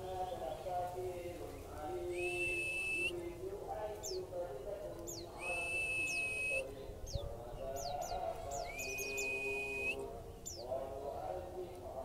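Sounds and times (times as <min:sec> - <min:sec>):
bird long high whistles: 0:02.2 - 0:03.1, 0:05.4 - 0:06.6, 0:08.7 - 0:10.0.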